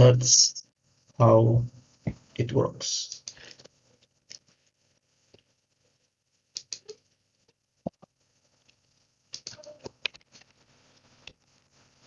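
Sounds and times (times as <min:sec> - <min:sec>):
computer keys and mouse clicks: 0:06.5 - 0:07.0, 0:09.3 - 0:10.5.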